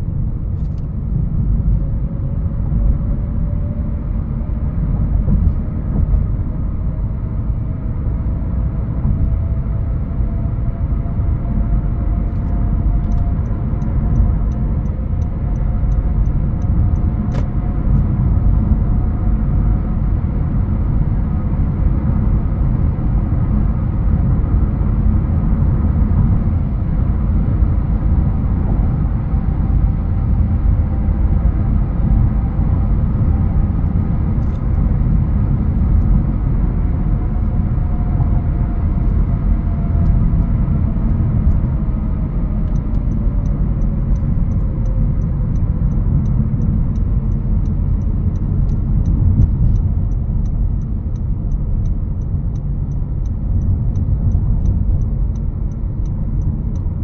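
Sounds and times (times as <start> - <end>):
car engine and road rumble: 0.0 - 57.0
turn signal ticking: 12.3 - 18.8, 37.4 - 57.0.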